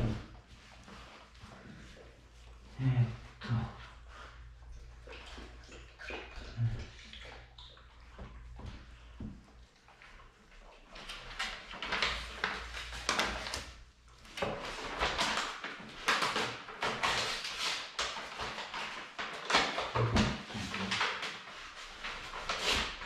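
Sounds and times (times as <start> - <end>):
paper rustling: 10.9 - 23.0.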